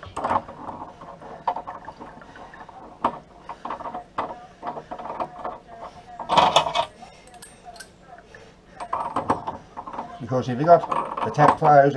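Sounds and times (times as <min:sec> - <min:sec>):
tool clicking and scraping on metal: 0:00.0 - 0:08.0.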